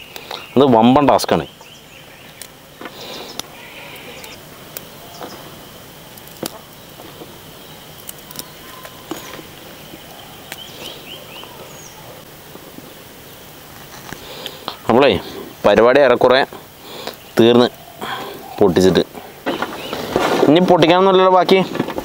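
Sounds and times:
bird chirps: 0.0s - 5.6s, 6.6s - 12.2s
high insect drone: 0.0s - 22.0s
chilli stems snapping: 2.3s - 5.4s, 6.1s - 7.2s, 7.9s - 9.5s, 10.4s - 11.7s.

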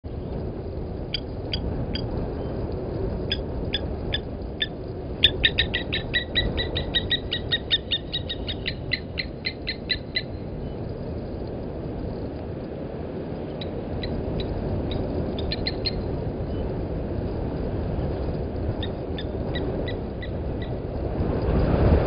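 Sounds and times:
low background rumble: 0.1s - 22.0s
bird's metallic tink calls: 3.3s - 10.8s, 13.5s - 16.7s, 18.8s - 20.8s.

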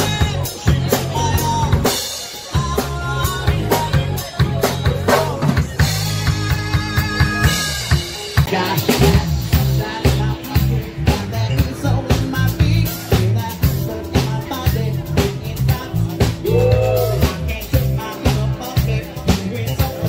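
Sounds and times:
drum kit beat: 0.0s - 20.0s
live band playing: 0.0s - 20.0s.

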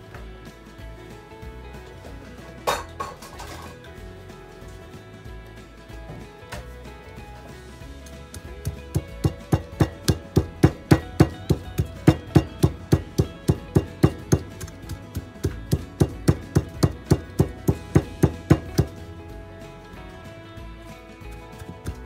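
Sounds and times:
background music: 0.0s - 22.0s
wooden pestle pounding in bowl: 8.3s - 19.0s.

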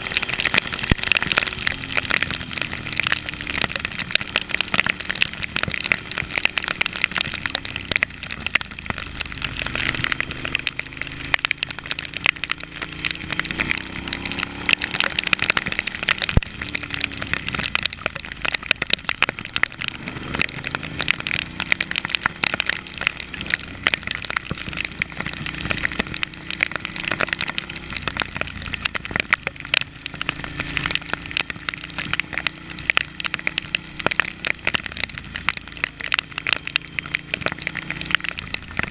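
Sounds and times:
motorcycle engine revving: 0.0s - 38.9s
raindrops striking camera: 0.0s - 38.9s.

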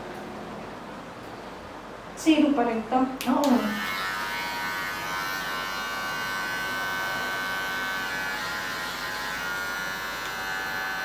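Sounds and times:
electric hair clippers buzzing: 3.4s - 11.0s.

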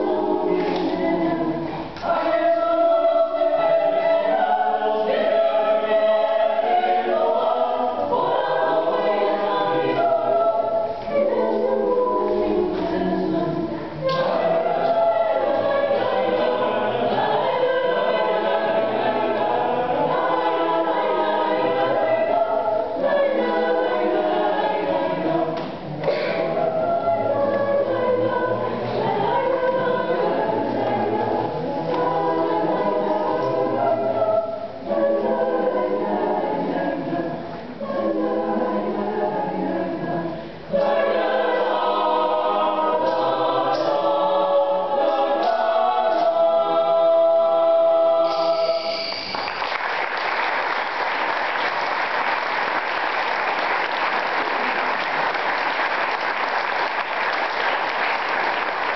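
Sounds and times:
choir singing a cappella: 0.0s - 50.0s
audience applauding: 49.1s - 58.9s.

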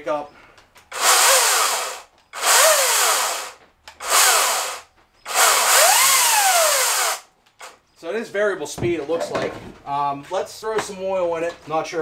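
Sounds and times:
electric chainsaw whirring: 0.9s - 7.8s.

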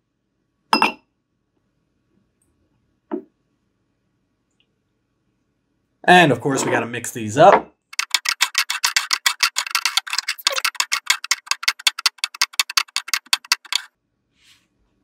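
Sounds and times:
rapid ticking: 7.9s - 13.9s.

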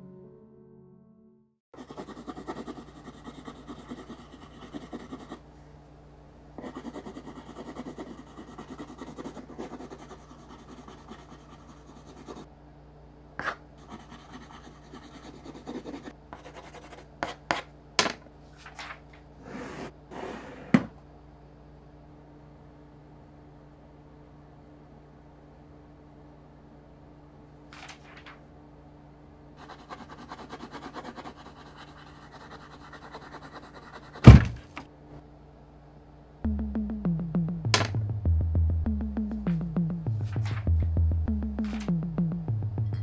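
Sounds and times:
pencil scratching on paper: 1.8s - 5.4s, 6.6s - 12.5s, 13.4s - 17.7s, 29.6s - 34.6s
steady low hum: 1.8s - 43.0s.

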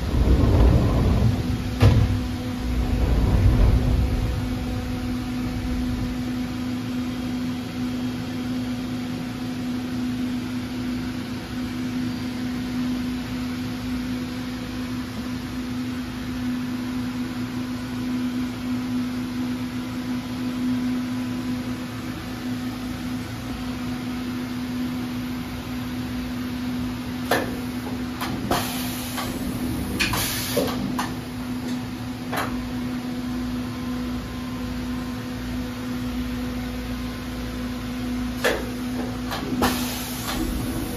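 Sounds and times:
machining center humming: 0.0s - 9.4s, 19.9s - 40.9s.

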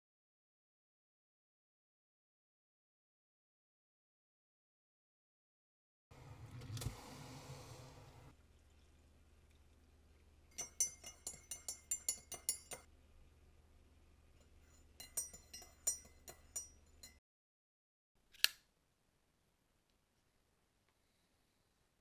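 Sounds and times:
spoon clinking in ceramic mug: 10.5s - 12.9s, 14.4s - 17.2s
sharp click: 18.3s - 18.6s.

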